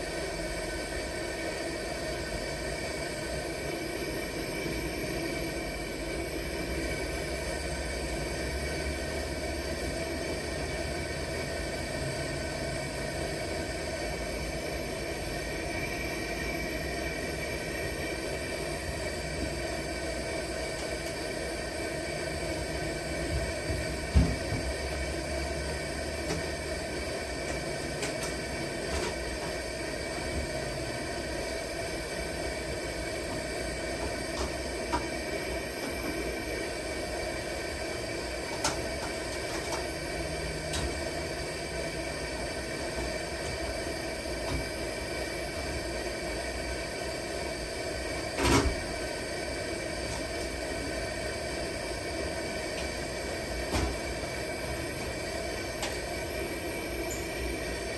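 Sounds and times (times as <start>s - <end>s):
camp stove burner flame: 0.0s - 57.9s.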